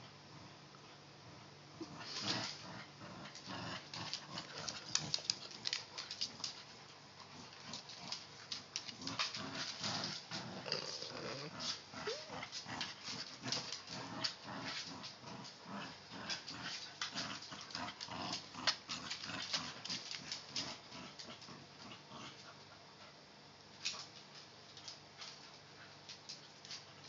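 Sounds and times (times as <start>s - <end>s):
dogs growling: 1.8s - 6.6s, 7.2s - 22.6s
dogs scuffling: 3.3s - 11.8s
claws clicking on hardwood floor: 3.9s - 11.0s.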